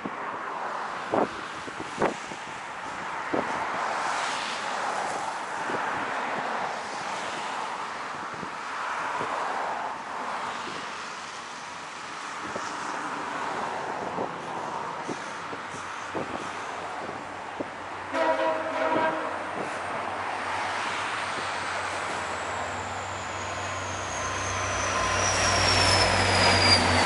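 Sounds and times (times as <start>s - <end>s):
wind rushing over microphone: 1.0s - 4.0s, 8.2s - 9.4s, 12.4s - 12.8s, 13.5s - 17.9s.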